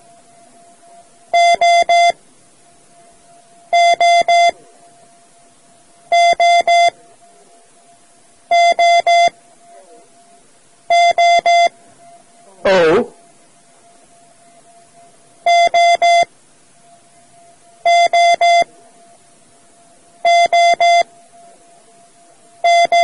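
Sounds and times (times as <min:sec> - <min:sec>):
morse code long beeps: 0:00.9 - 0:02.2, 0:03.6 - 0:04.6, 0:06.1 - 0:07.0, 0:08.5 - 0:09.4, 0:10.9 - 0:13.1, 0:13.9 - 0:16.3, 0:17.8 - 0:18.7, 0:20.2 - 0:21.5, 0:22.6 - 0:23.0.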